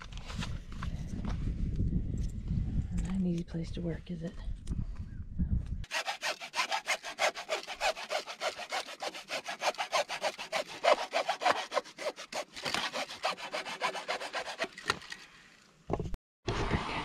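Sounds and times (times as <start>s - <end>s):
hand tool rasping: 5.9s - 15.3s.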